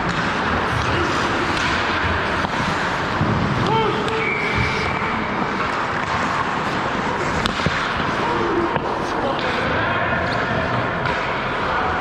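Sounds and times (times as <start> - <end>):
stick and puck clacks: 0.0 - 12.0
skates scraping on ice: 0.1 - 9.3
sharp crack: 7.3 - 8.1.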